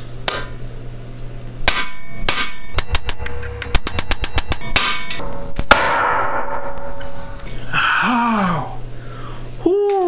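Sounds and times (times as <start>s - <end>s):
hammer clanging on steel punch: 1.7s - 7.1s.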